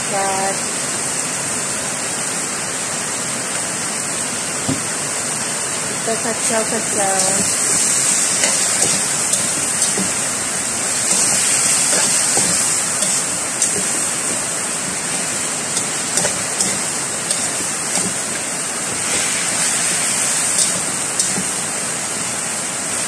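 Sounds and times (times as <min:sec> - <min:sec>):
loud steady hiss: 0:00.0 - 0:23.0
spatula scraping a metal wok: 0:07.0 - 0:18.3, 0:18.9 - 0:21.4.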